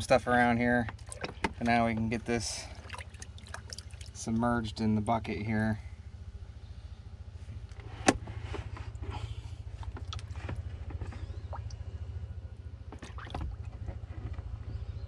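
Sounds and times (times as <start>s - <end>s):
bilge pump humming: 0.0s - 15.0s
water splashing: 0.9s - 4.4s, 13.0s - 13.7s.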